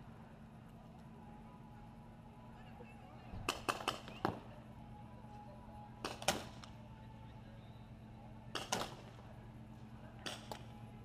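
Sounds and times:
paintball pistol shots: 3.4 - 4.4, 6.0 - 6.7, 8.5 - 9.2.

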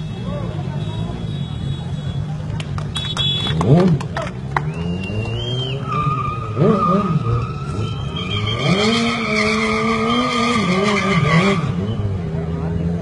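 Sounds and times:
motorcycle engine revving: 3.4 - 13.0
motorcycle tyre squealing: 4.6 - 13.0.

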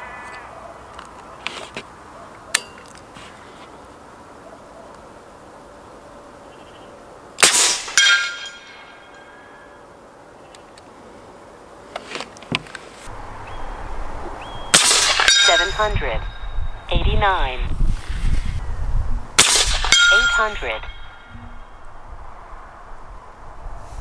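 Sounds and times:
air rifle shots with metallic ringing: 7.4 - 9.4, 14.7 - 16.4, 19.4 - 21.3.

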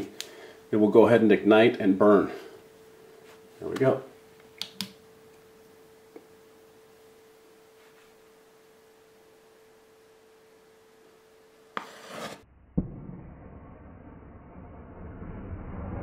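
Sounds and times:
faint steady hum: 0.0 - 12.4
low rushing burn: 12.5 - 16.0
thump: 12.8 - 13.2.

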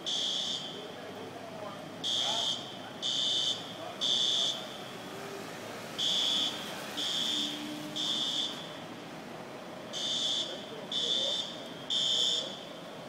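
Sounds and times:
fire alarm beeping: 0.0 - 0.8, 2.0 - 4.9, 6.0 - 8.7, 10.0 - 12.8.

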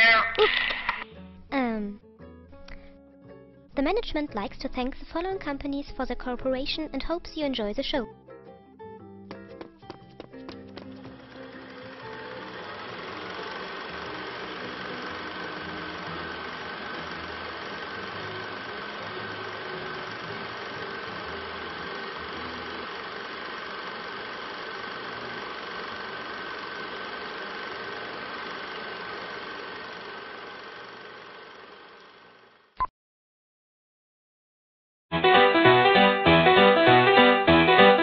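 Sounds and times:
film projector whirring: 10.5 - 32.8.

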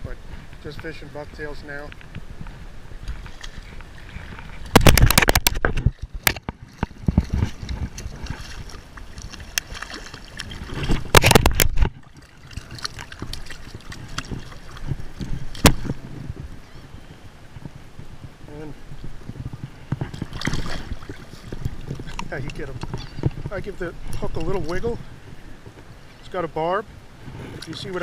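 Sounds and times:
fish splashing at water surface: 3.2 - 16.1, 20.0 - 22.2
rapid crackling clatter: 4.2 - 8.0.

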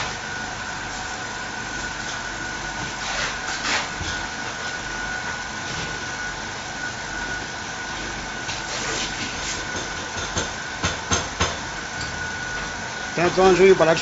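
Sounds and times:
workshop background noise: 0.8 - 6.5, 7.9 - 14.0.

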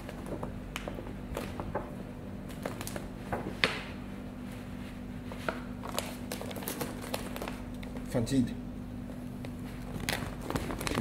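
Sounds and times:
plastic film crinkling: 0.0 - 3.5, 5.3 - 8.1, 9.6 - 11.0
steady low hum: 0.0 - 11.0.

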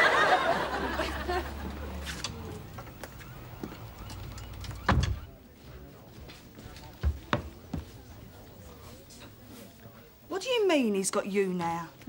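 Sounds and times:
audience laughing: 0.0 - 2.6.

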